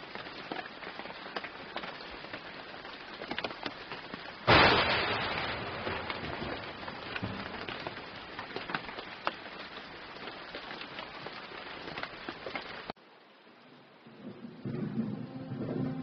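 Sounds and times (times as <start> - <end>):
raindrops tapping on surface: 0.0 - 13.0
steady rain: 0.0 - 16.0.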